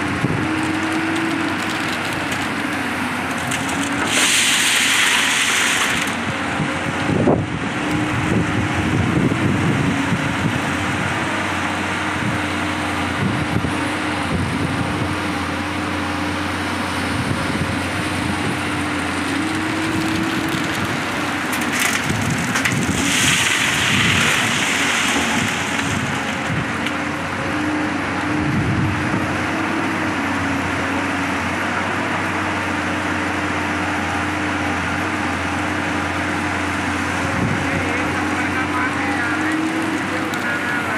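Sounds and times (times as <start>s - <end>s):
excavator diesel engine running: 0.0s - 40.9s
stone pouring into truck bed: 3.2s - 6.3s, 20.7s - 26.7s.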